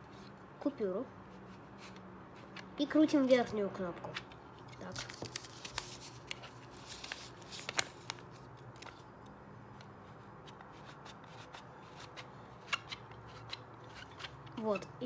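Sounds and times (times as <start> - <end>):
paper banknote rustling: 4.8 - 9.1, 9.8 - 14.8.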